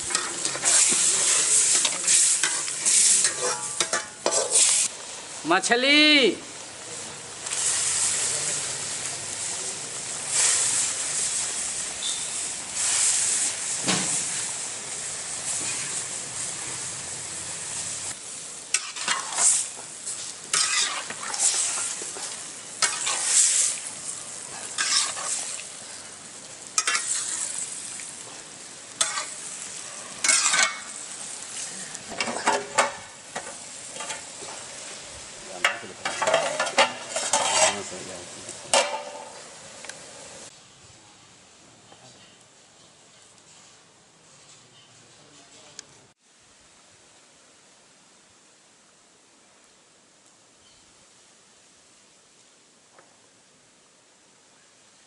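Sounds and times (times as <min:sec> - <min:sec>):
curry bubbling and sizzling: 0:00.0 - 0:05.8, 0:06.4 - 0:40.5
metal spatula scraping pan: 0:00.1 - 0:04.9, 0:18.7 - 0:19.7, 0:20.5 - 0:23.7, 0:24.5 - 0:25.6, 0:26.8 - 0:27.6, 0:29.0 - 0:29.4, 0:30.2 - 0:30.9, 0:35.6 - 0:38.0.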